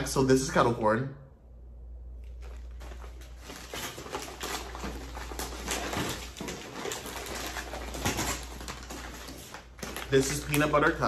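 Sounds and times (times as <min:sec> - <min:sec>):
packing paper rustling and crinkling: 0:02.2 - 0:11.0.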